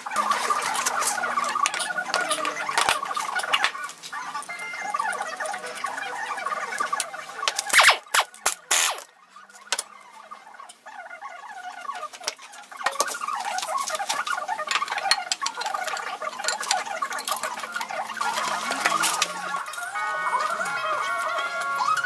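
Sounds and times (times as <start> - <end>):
impact wrench bursts: 7.7 - 9.0.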